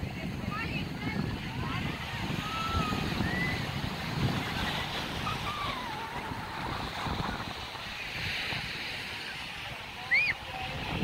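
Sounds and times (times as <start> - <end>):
beach surf: 0.0 - 11.0
wind buffeting microphone: 0.0 - 11.0.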